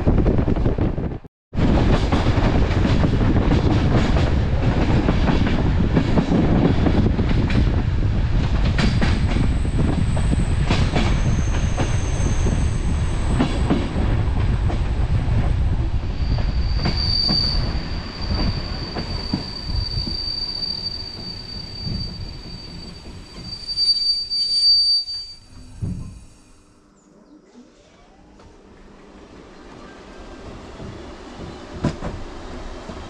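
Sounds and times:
train wheels rumbling on rails: 0:00.0 - 0:24.5, 0:29.6 - 0:33.0
high-pitched wheel squeal: 0:16.1 - 0:26.6.

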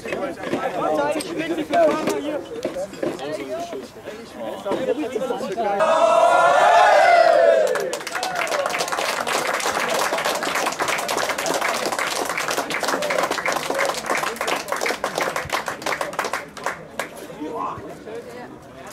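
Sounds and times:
voices shouting: 0:05.7 - 0:08.4
group clapping applause: 0:07.4 - 0:17.2.

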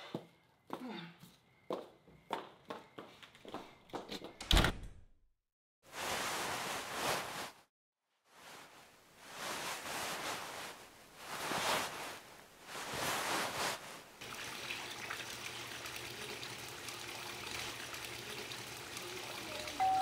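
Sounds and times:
plastic sheeting scraping on tile: 0:05.9 - 0:07.7, 0:08.4 - 0:14.1
trickle of fountain water: 0:14.2 - 0:20.0.

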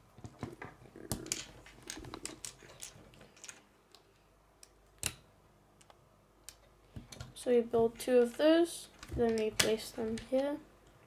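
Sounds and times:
plastic bricks clicking: 0:01.0 - 0:04.0.

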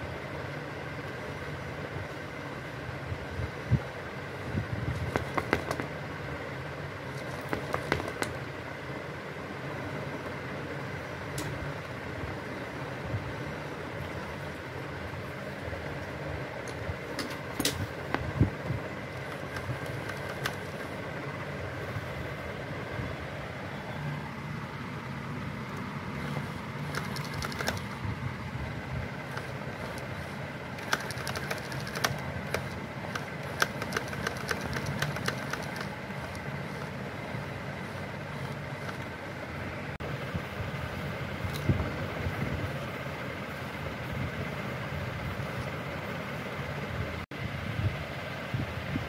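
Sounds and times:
gear motor humming: 0:00.0 - 0:47.2
sharp clicks: 0:19.2 - 0:20.9, 0:26.8 - 0:28.0, 0:30.8 - 0:36.9.

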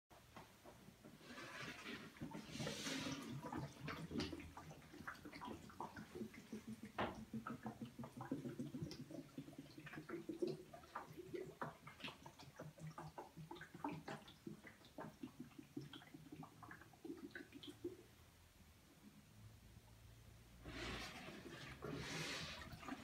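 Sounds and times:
water gurgling and dripping: 0:01.0 - 0:18.4, 0:20.6 - 0:23.0
air bubbles plinking: 0:02.4 - 0:18.0.

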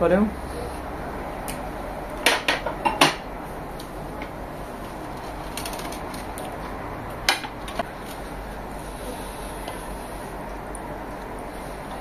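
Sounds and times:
steady low hum: 0:00.0 - 0:12.0
dishes clicking and knocking: 0:02.2 - 0:03.2.

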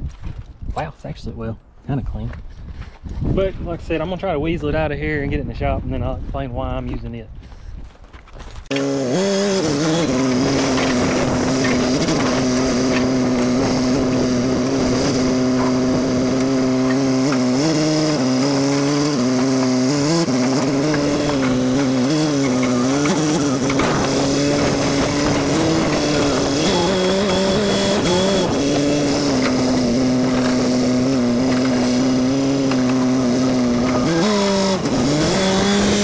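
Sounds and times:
forklift diesel engine running: 0:08.7 - 0:36.0.

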